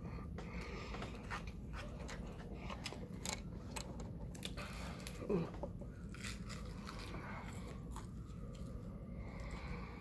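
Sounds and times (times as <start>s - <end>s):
crunching fried chicken: 6.0s - 8.7s.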